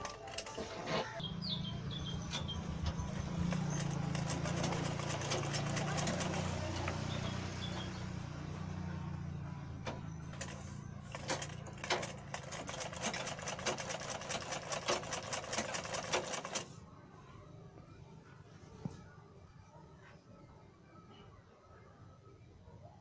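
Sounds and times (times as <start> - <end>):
sewing machine stitching: 3.2 - 7.4, 10.3 - 16.7.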